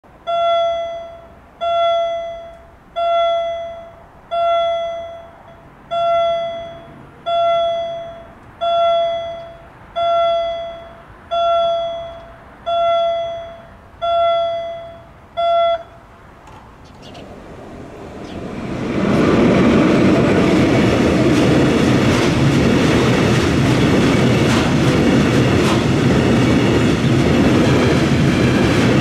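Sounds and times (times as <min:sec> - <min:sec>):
level crossing warning bell: 0:00.2 - 0:16.1.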